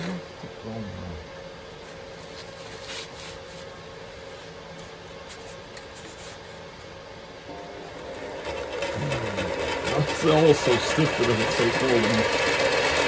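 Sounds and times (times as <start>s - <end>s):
work gloves rustling: 1.8s - 7.0s
bench grinder motor starting: 7.5s - 13.0s.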